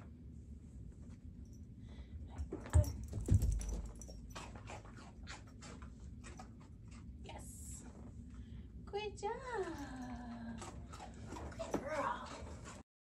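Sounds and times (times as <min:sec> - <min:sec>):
paws and nails clicking: 0:02.4 - 0:07.1, 0:09.7 - 0:12.8
dog thumping on rug: 0:02.5 - 0:04.1.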